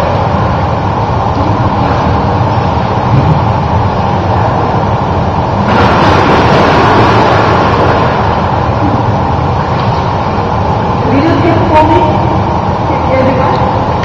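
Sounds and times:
indoor pool hall rushing noise: 0.0s - 14.0s
swimmer kicking splashes: 5.6s - 10.2s.

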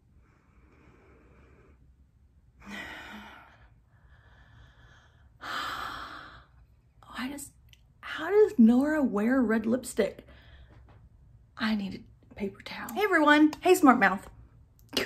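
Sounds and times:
woman exhaling and sighing: 2.6s - 6.6s.

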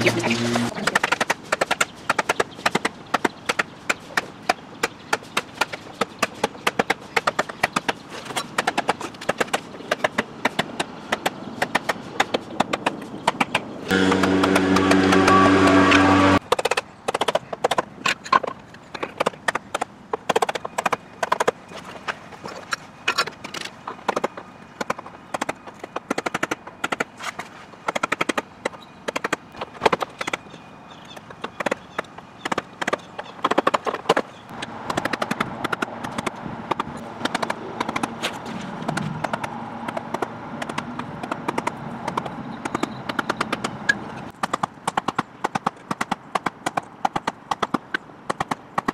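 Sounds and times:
loud low steady tone: 13.9s - 16.4s.

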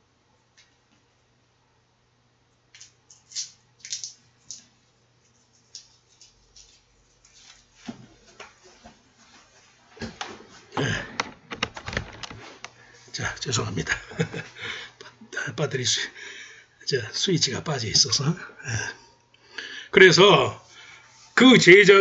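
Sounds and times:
bumps and rustling on microphone: 7.9s - 12.7s.

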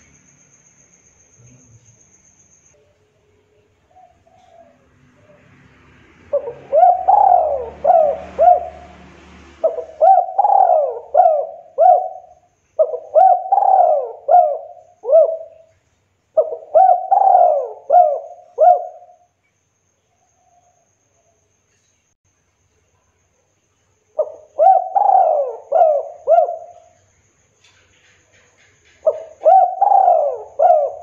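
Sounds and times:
dove cooing: 3.9s - 5.5s, 6.2s - 15.7s, 16.4s - 19.2s, 24.2s - 27.0s, 29.0s - 31.0s.

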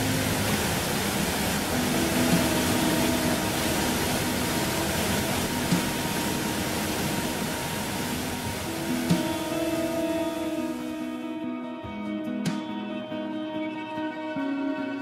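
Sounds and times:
waterfall rushing: 0.0s - 11.1s.

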